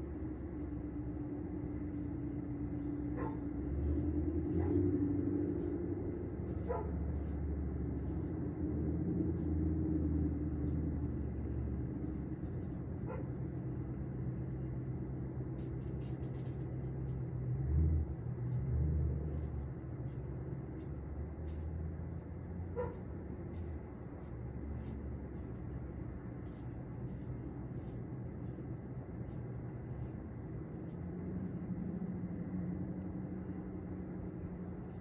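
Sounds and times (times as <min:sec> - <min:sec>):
steady low rumble: 0:00.0 - 0:35.0
faint dog barks: 0:03.0 - 0:05.8, 0:06.4 - 0:07.4, 0:13.0 - 0:13.5, 0:22.7 - 0:23.1.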